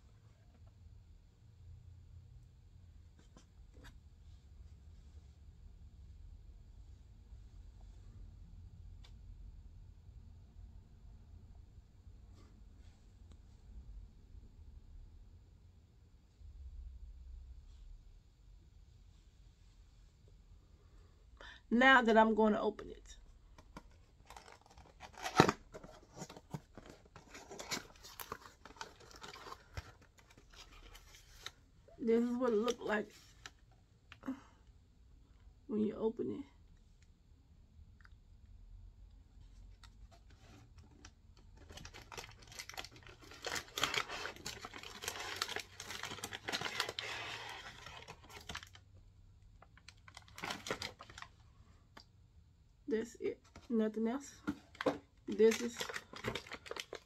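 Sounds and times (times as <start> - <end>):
plastic packaging crinkling: 23.7 - 31.6, 41.5 - 48.8, 49.7 - 51.4, 54.7 - 57.0
cardboard box being opened: 24.2 - 31.5, 41.7 - 48.7.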